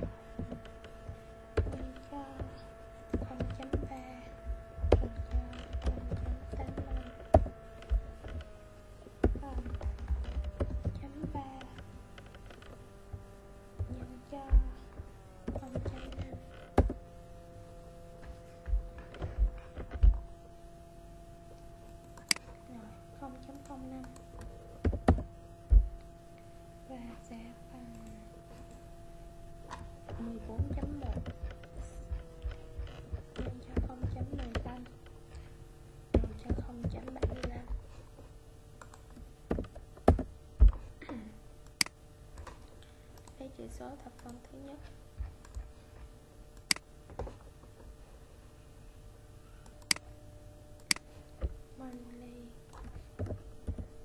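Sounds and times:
dull low thumps: 0.0 - 12.2, 13.0 - 20.7, 24.2 - 26.2, 29.8 - 34.8.

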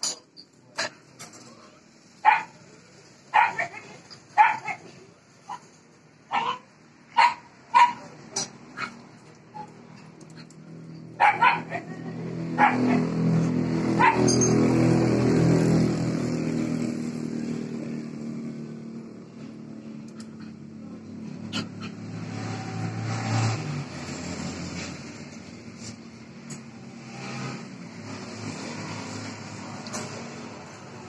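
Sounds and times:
vehicle engine hum: 0.0 - 31.0
dog barking: 2.2 - 2.6, 3.3 - 4.9, 6.3 - 8.1, 11.2 - 12.0, 12.6 - 13.1, 14.0 - 14.4.

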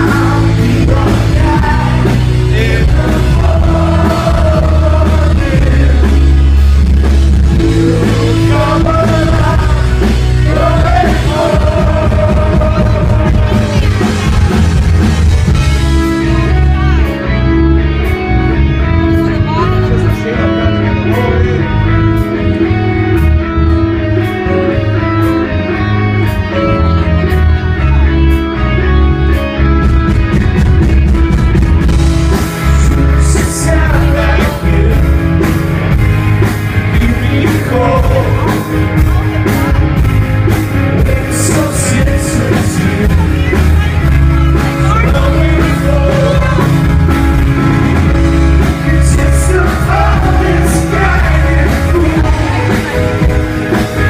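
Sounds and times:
person singing: 0.0 - 6.6, 7.4 - 14.6, 32.6 - 35.5, 36.9 - 39.6, 41.0 - 47.2, 48.3 - 54.0
electric guitar melody: 0.0 - 54.0
rock band playing live: 0.0 - 54.0.

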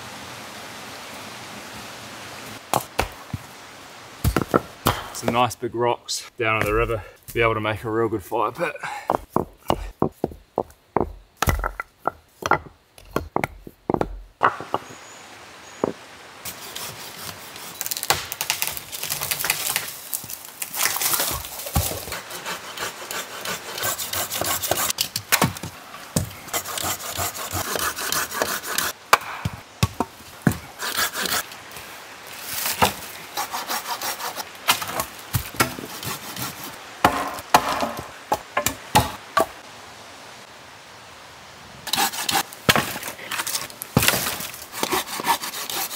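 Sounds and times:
stones knocking together: 4.2 - 5.5, 6.6 - 7.6, 9.0 - 15.0, 15.8 - 16.0
hand saw cutting a branch: 16.5 - 18.2, 20.8 - 25.0, 26.5 - 29.0, 30.5 - 31.5, 32.7 - 36.7, 41.9 - 45.9.

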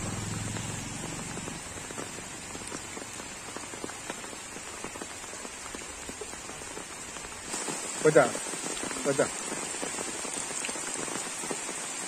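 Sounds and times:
raindrops striking close by: 0.0 - 12.0
steady rain falling: 0.0 - 12.0.

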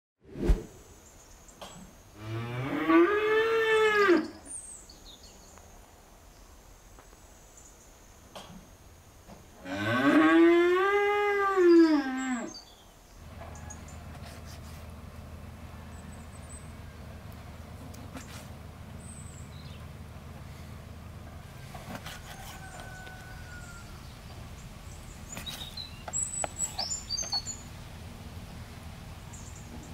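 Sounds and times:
cattle mooing: 2.2 - 4.3, 9.6 - 12.5.

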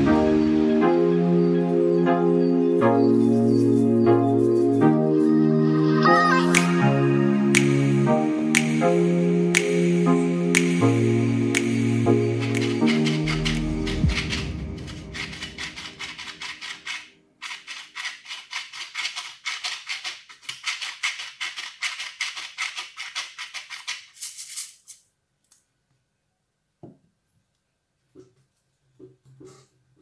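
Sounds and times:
pepper mill grinding: 12.4 - 25.0.

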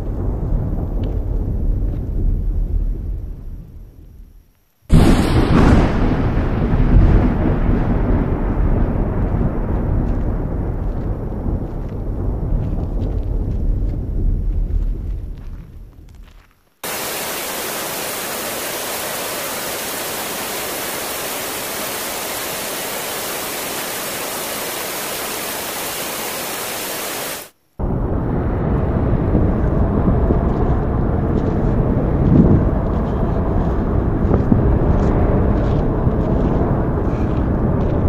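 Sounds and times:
wind rumble on microphone: 0.0 - 38.0
steady static-like hiss: 16.8 - 27.9.

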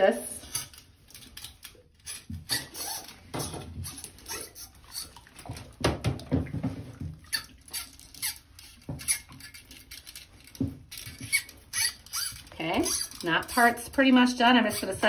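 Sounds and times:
wire brush squeaking in tube: 0.4 - 5.4, 7.2 - 15.0.

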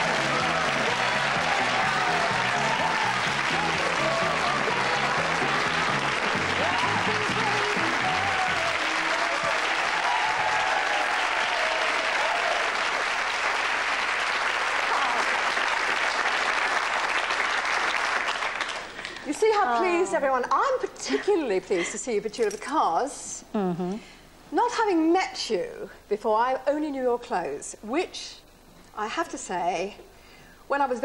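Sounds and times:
studio audience applauding: 0.0 - 19.7.

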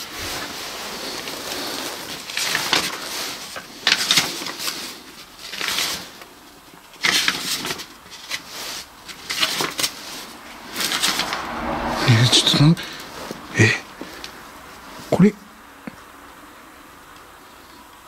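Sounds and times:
rustling and crunching: 0.0 - 12.0.

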